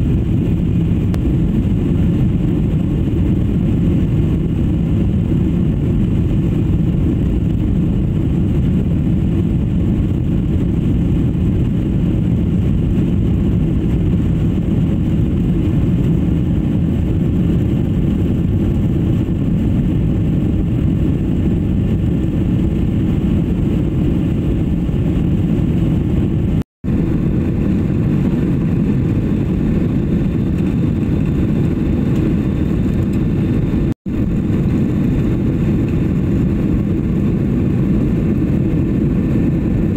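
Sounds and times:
air rushing past fuselage: 0.0 - 39.9
jet engines droning: 0.0 - 39.9.

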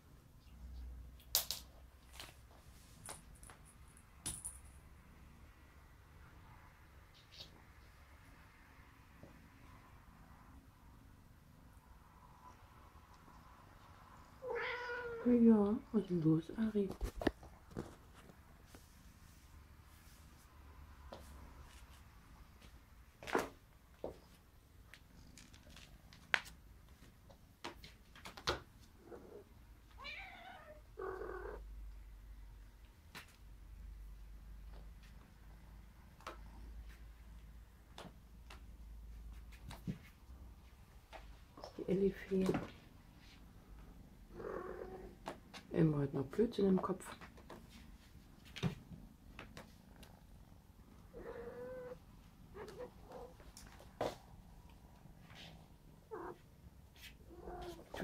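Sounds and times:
cat meowing: 14.4 - 15.3, 30.0 - 31.6, 51.1 - 53.3.

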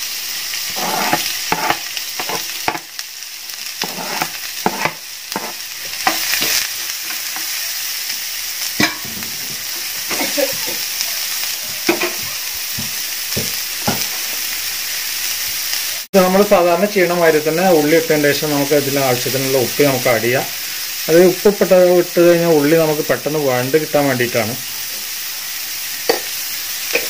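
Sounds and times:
onion sizzling in oil: 0.0 - 27.0
metal spatula scraping a pan: 0.6 - 2.9, 3.7 - 7.7, 8.8 - 10.9, 11.8 - 12.3.

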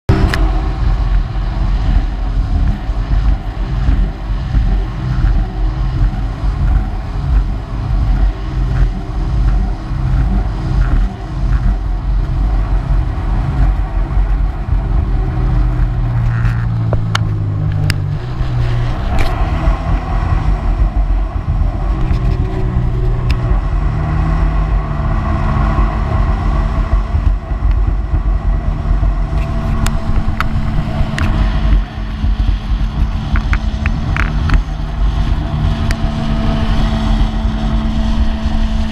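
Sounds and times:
watercraft engine drone: 0.1 - 38.9.

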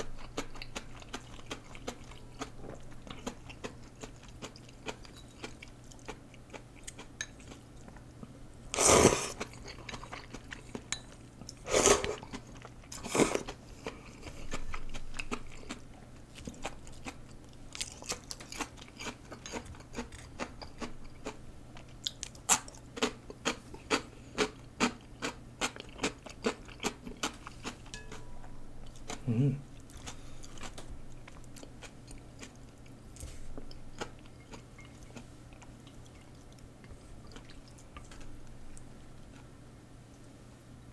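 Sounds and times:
noodle slurping: 8.7 - 9.5.

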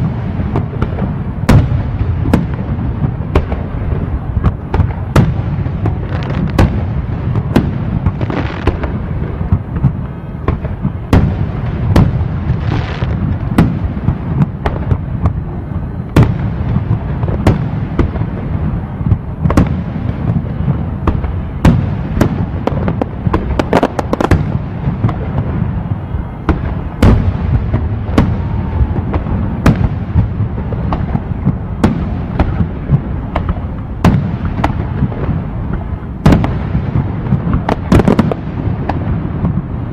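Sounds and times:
fireworks bangs: 0.0 - 39.9.

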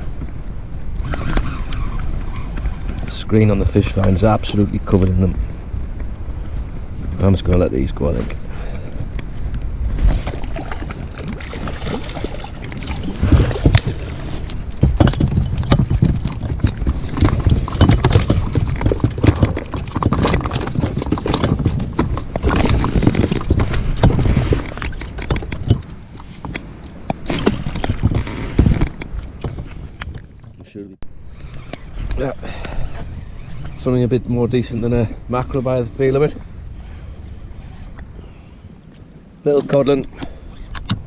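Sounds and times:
rustling and knocking: 9.3 - 30.7.

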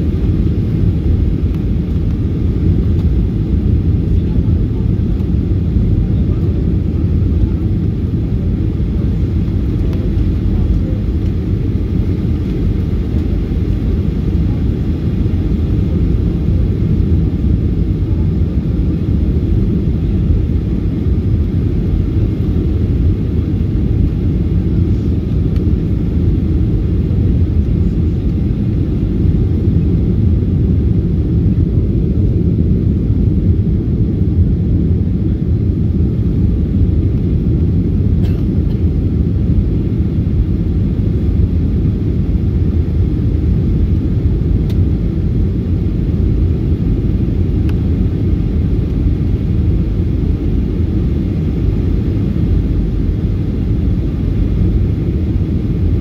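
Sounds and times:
airflow noise along fuselage: 0.0 - 56.0
jet engine drone: 0.0 - 56.0.

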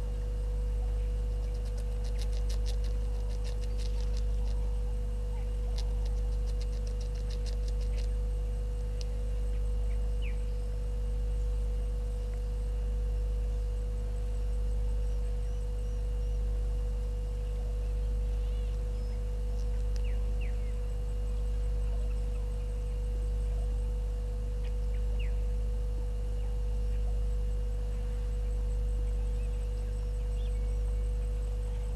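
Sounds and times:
low electrical hum: 0.0 - 31.9.

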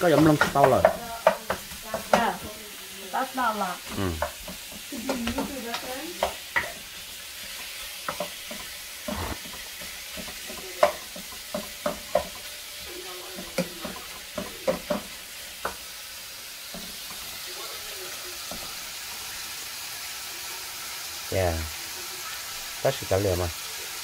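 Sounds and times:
meat sizzling in a wok: 0.0 - 24.0
wooden spatula scraping a pan: 4.2 - 15.9.

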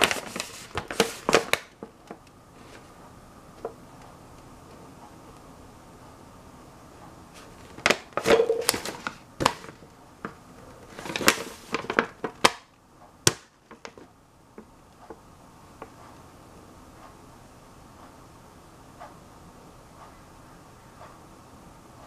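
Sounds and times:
paper wrapper crinkling: 0.0 - 1.7, 10.9 - 12.6.

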